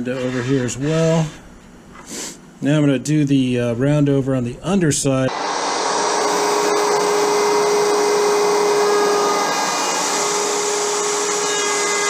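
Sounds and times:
electric router cutting wood: 0:05.3 - 0:12.0.

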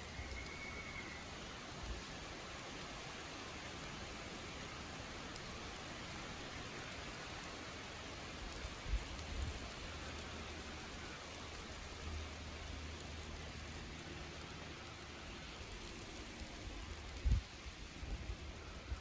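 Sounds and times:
forest ambience hiss: 0:00.0 - 0:19.0.

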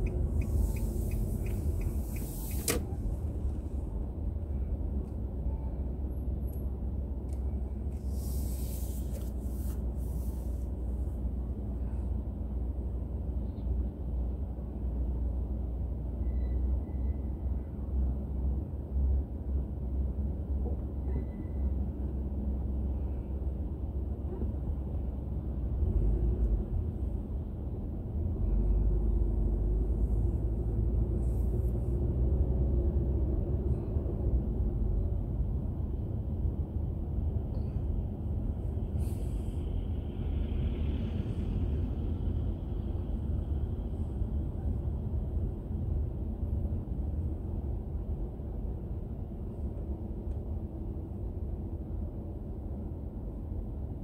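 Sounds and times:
car road and engine rumble: 0:00.0 - 0:54.0
brief hiss: 0:00.3 - 0:03.0, 0:08.0 - 0:10.6, 0:39.0 - 0:39.6.

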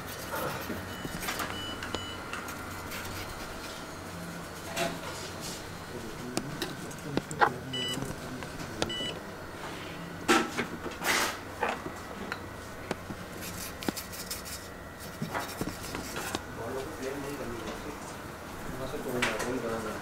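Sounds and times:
faint room hum: 0:00.0 - 0:20.0
short electronic beeps: 0:07.7 - 0:08.0, 0:08.9 - 0:09.2.

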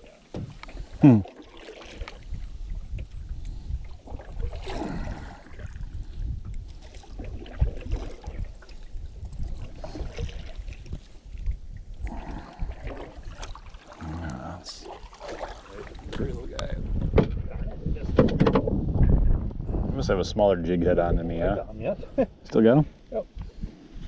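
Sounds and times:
wind rumbling on microphone: 0:01.9 - 0:13.8, 0:14.6 - 0:24.0
knocks in canoe: 0:18.1 - 0:18.8.

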